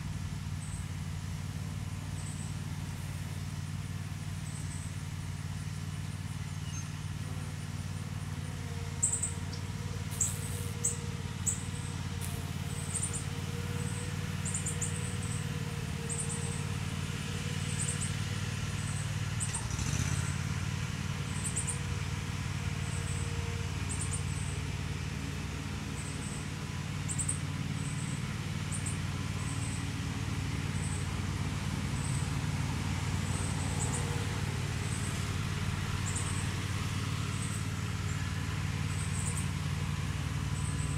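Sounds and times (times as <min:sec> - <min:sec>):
low machine hum: 0:00.0 - 0:40.9
high insect chirps: 0:09.0 - 0:16.7.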